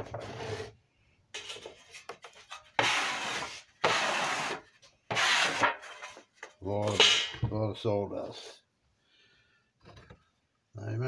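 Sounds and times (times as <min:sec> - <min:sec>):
carving tool scraping wood: 0:02.8 - 0:06.2.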